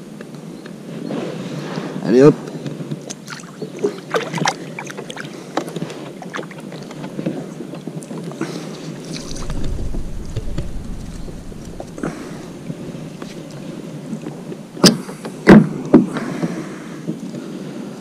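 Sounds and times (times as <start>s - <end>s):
low microphone rumble: 9.1s - 14.0s.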